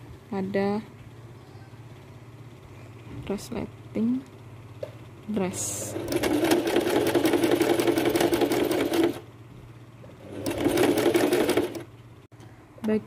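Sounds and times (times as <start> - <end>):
sewing machine rattling: 5.5 - 9.2, 10.1 - 11.9.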